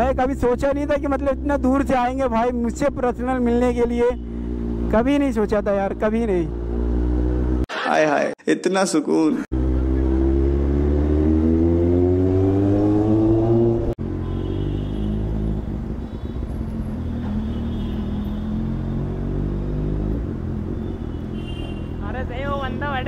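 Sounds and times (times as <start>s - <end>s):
motorcycle engine accelerating: 0.0s - 7.6s, 9.5s - 14.1s, 16.6s - 21.2s.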